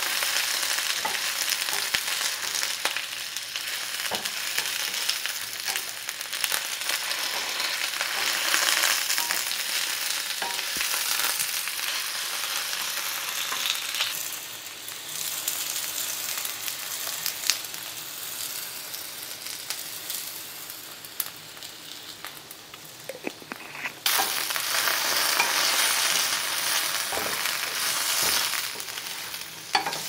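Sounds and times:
potatoes sizzling in pan: 0.0 - 30.0
spatula knocking pan: 29.7 - 30.0.

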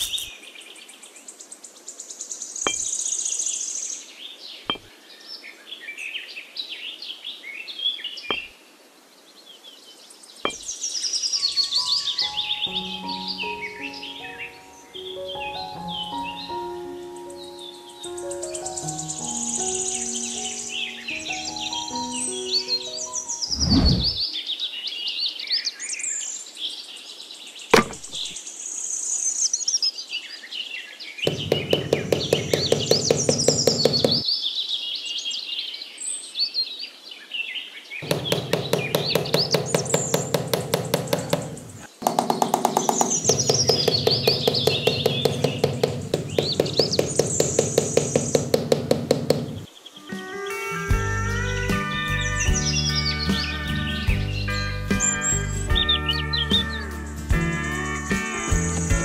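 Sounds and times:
sharp click: 0.0 - 0.3
birds chirping: 0.0 - 1.4, 2.4 - 6.0, 7.4 - 8.6, 10.2 - 24.4, 31.2 - 34.3, 38.0 - 50.4.

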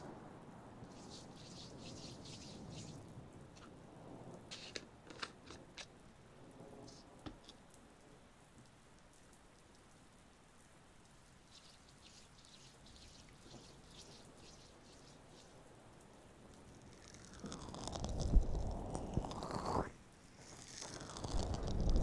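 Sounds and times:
hands rubbing together: 0.9 - 3.0.

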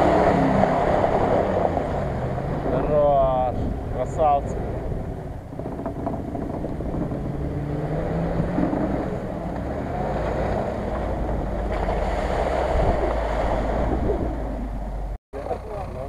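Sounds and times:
wind on microphone: 0.0 - 15.2
suv engines running: 0.0 - 16.0.

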